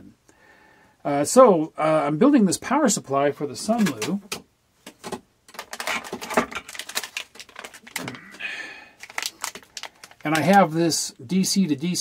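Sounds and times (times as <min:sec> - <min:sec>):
plastic bag rustling: 0:05.0 - 0:10.6.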